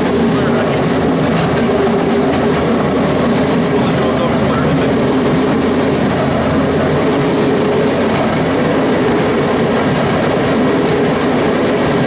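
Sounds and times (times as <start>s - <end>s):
wheels on track: 0.0s - 12.0s.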